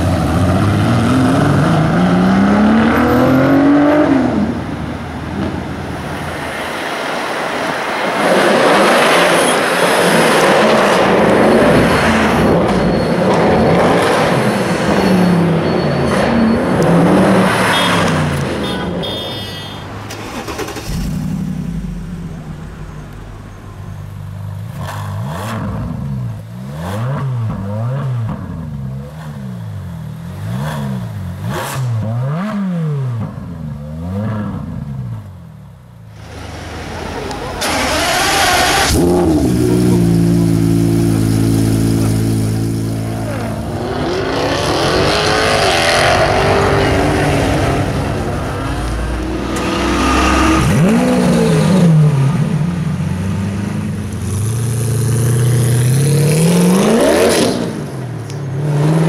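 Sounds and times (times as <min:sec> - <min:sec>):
engine revving: 0:00.0 - 0:04.6, 0:20.1 - 0:23.4, 0:24.6 - 0:28.5, 0:36.2 - 0:58.0
car engine accelerating hard: 0:36.2 - 0:58.0.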